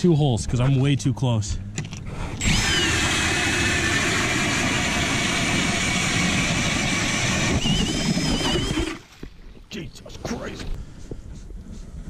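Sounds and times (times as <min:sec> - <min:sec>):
ice auger motor whine: 0:02.4 - 0:09.0.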